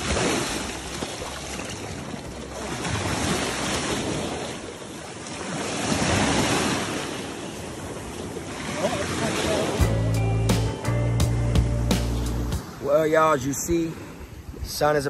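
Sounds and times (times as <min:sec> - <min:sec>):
water splashing: 0:00.0 - 0:10.1
ocean surf washing up: 0:00.0 - 0:14.8.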